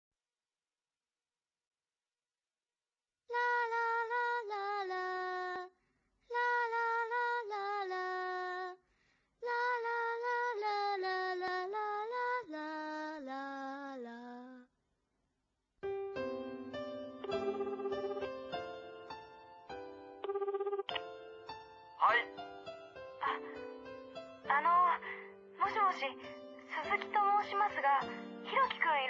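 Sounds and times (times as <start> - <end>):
woman singing unaccompanied: 3.3 - 5.7, 6.3 - 8.8, 9.4 - 14.7
instrumental music: 15.8 - 29.0.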